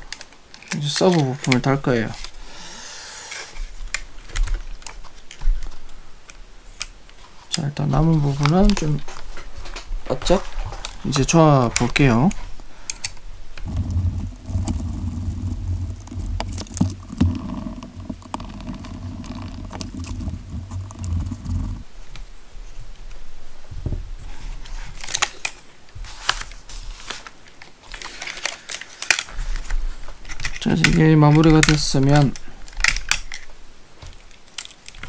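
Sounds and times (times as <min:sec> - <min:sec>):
small plastic parts clicking: 0:00.0 - 0:02.4, 0:27.5 - 0:33.5, 0:34.1 - 0:35.0
low hum: 0:13.2 - 0:22.5.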